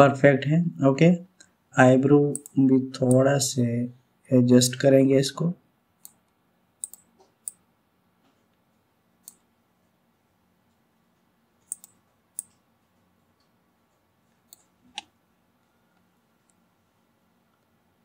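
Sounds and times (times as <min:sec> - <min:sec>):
computer mouse clicking: 0:02.3 - 0:03.2, 0:06.0 - 0:07.6, 0:09.2 - 0:09.4, 0:11.6 - 0:12.6, 0:14.4 - 0:15.2.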